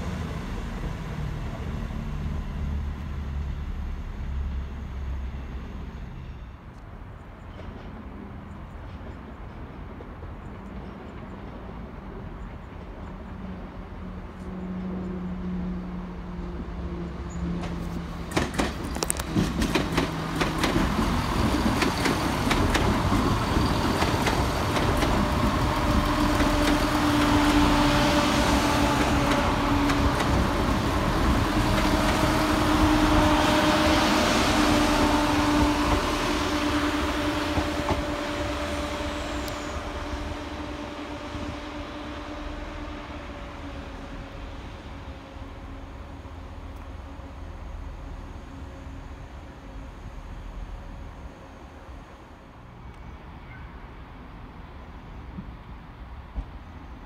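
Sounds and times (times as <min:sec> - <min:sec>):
train engine drone: 0:00.0 - 0:57.0
train wheels clicking on rail joints: 0:06.6 - 0:15.2, 0:17.3 - 0:33.3, 0:34.5 - 0:40.0.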